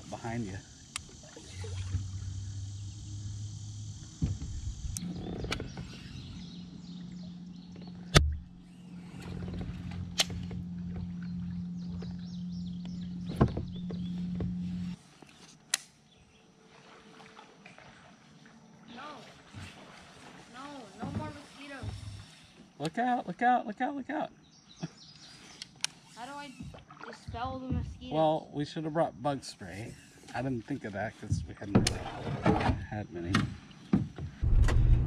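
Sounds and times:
small motor humming: 0:00.0 - 0:15.5, 0:24.8 - 0:27.8, 0:29.6 - 0:30.5.

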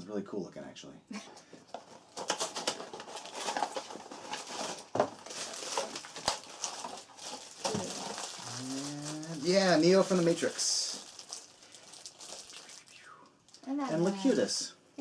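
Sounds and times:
packaging tearing and crinkling: 0:01.8 - 0:14.5
person speaking: 0:08.4 - 0:11.0, 0:13.6 - 0:14.8.

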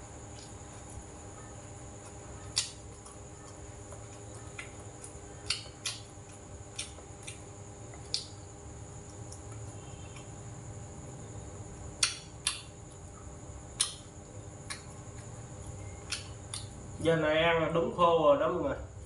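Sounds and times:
steady hum: 0:00.0 - 0:19.0
person chewing: 0:01.8 - 0:08.4, 0:14.6 - 0:16.8
chopsticks and spoon clicking: 0:12.0 - 0:12.7, 0:13.8 - 0:14.0.

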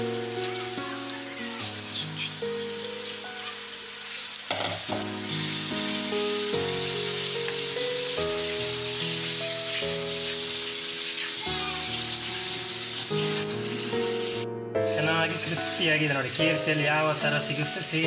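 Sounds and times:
background music of held notes: 0:00.0 - 0:18.0
chicken deep-frying in hot oil: 0:00.0 - 0:18.0.

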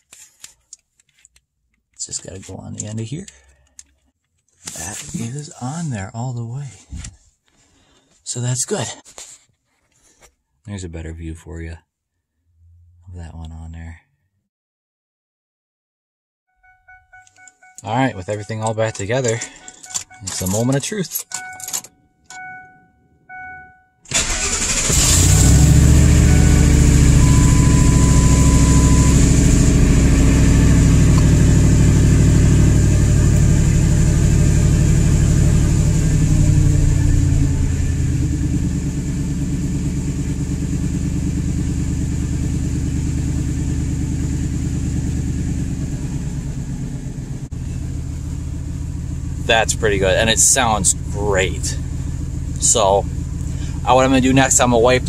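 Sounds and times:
short chimes: 0:16.6 - 0:24.8, 0:26.0 - 0:29.4
truck engine starting and idling: 0:17.1 - 0:55.0.

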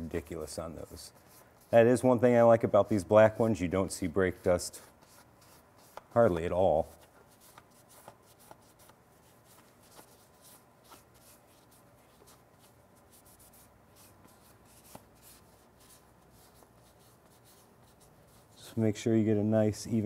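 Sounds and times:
cloth pad rubbing: 0:04.2 - 0:18.7.

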